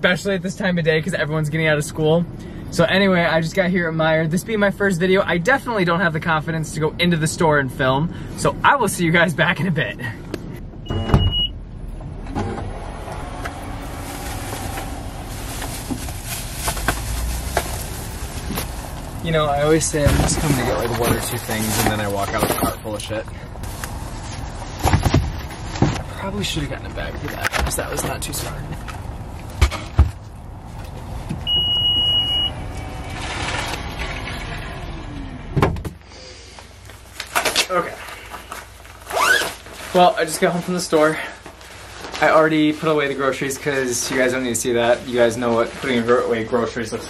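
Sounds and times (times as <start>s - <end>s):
outdoor traffic noise: 0.0s - 47.0s
electronic beep: 10.8s - 11.6s, 31.5s - 32.7s
grocery bags thumping down: 13.9s - 23.0s
car hatch closing thud: 35.6s - 36.0s.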